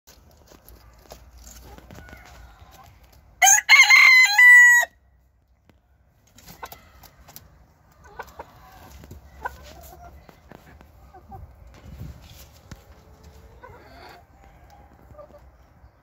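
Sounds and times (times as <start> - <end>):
hens clucking and scratching: 0.1 - 16.0
rooster crowing: 3.4 - 5.0.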